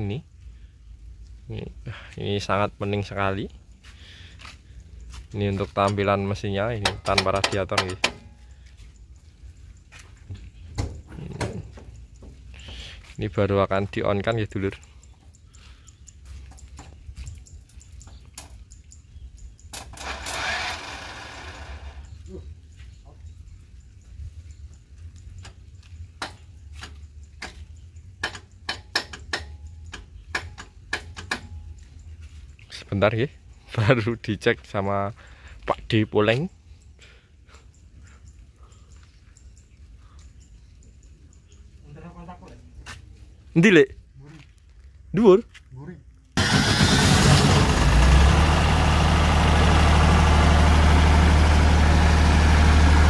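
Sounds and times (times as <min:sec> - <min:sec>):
sharp clicks and knocks: 0:06.8 - 0:08.3, 0:26.2 - 0:31.7
diesel generator idling: 0:46.4 - 0:53.0.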